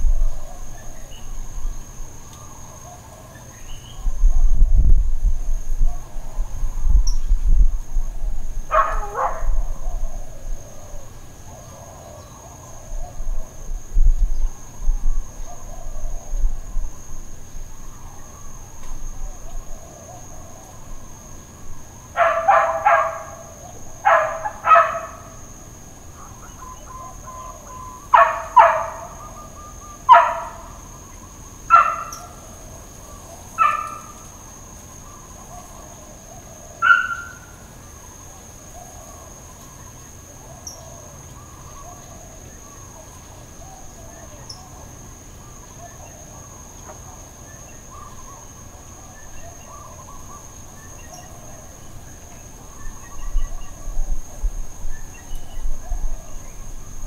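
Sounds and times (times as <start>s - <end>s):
distant dog barking: 8.7s - 10.3s, 22.1s - 25.5s, 27.4s - 30.8s, 31.7s - 32.5s, 33.5s - 34.2s, 35.4s - 37.6s.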